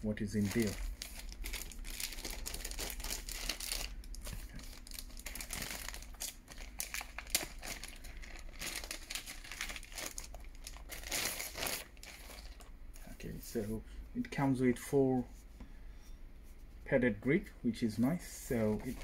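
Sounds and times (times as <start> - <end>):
plastic wrapping crinkling: 0.2 - 13.1.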